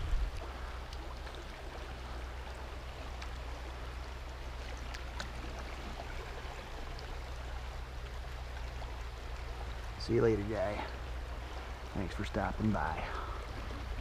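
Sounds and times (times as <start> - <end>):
river water rushing: 0.0 - 14.0
small splashes in water: 0.3 - 9.9.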